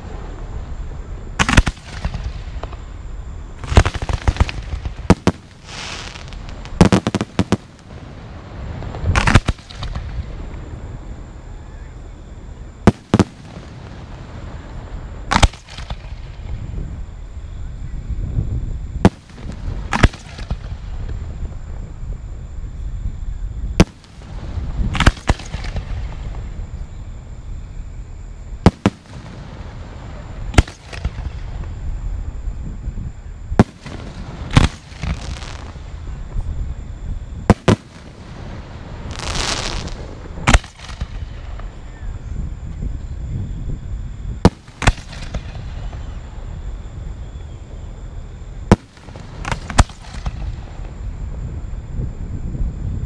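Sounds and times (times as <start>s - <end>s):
fireworks crackle: 0.0s - 11.1s, 12.8s - 17.0s, 19.0s - 22.0s, 23.7s - 27.0s, 28.6s - 32.3s, 33.6s - 41.9s, 44.4s - 46.5s, 48.7s - 51.2s
fireworks hiss: 0.0s - 17.4s, 18.0s - 43.8s, 44.4s - 52.9s
fireworks bangs: 1.4s - 2.9s, 3.6s - 10.9s, 12.8s - 16.7s, 19.0s - 21.2s, 23.8s - 26.7s, 28.6s - 31.8s, 33.5s - 36.4s, 37.4s - 41.8s, 44.4s - 46.5s, 48.6s - 51.0s.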